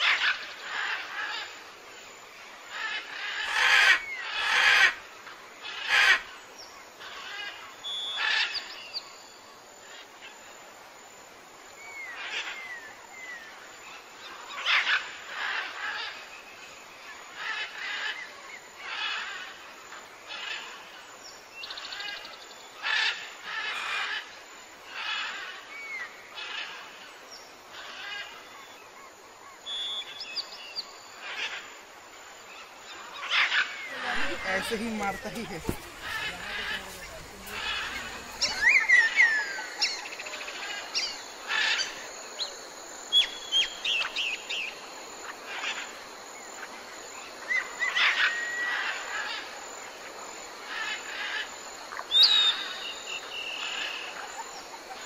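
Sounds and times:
birds calling: 2.7s - 6.4s, 32.5s - 49.6s, 50.6s - 55.0s
high bird trills: 33.2s - 42.0s.

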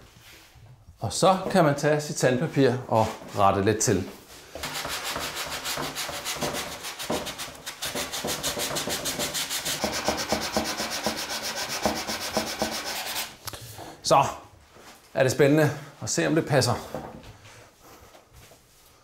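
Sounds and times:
sandpaper rubbing strokes: 4.6s - 13.4s.

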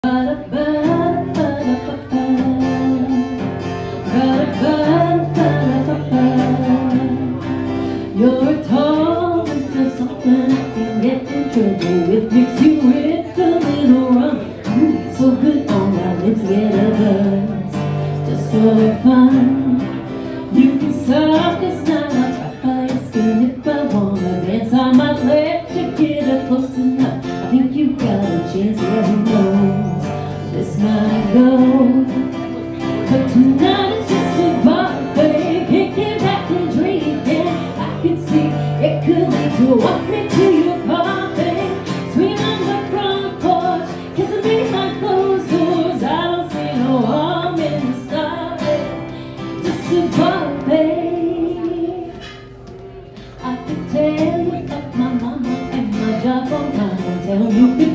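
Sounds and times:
strummed acoustic guitar: 0.0s - 57.9s
woman singing a country song: 0.0s - 57.9s.

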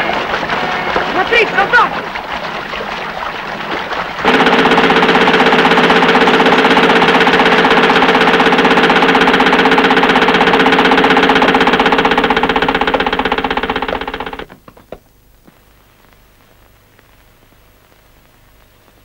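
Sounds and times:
machine gun firing burst: 3.9s - 14.5s.

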